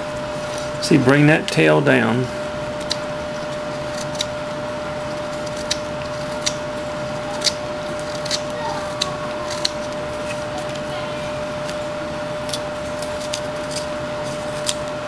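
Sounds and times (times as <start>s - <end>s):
steady background hum: 0.0s - 15.0s
knife cutting wood chips: 5.1s - 10.8s, 12.4s - 15.0s.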